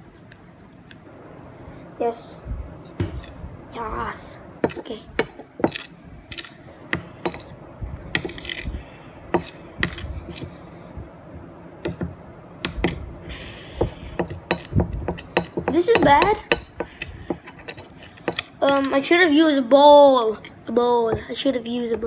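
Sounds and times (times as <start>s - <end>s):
spoon scraping against a plate: 7.2s - 10.6s, 13.9s - 19.0s.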